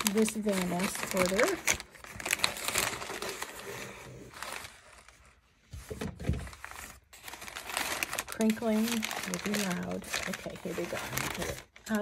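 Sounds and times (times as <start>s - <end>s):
paper rustling: 0.0s - 12.0s.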